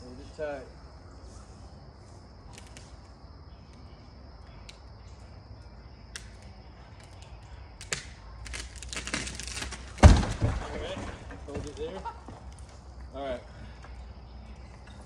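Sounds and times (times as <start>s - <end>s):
high insect whine: 0.0s - 15.0s
sharp clicks and snaps: 6.1s - 9.2s.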